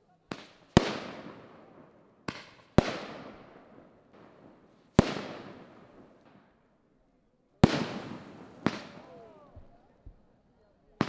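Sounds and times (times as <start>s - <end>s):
fireworks bangs: 0.3s - 6.5s, 7.6s - 10.2s.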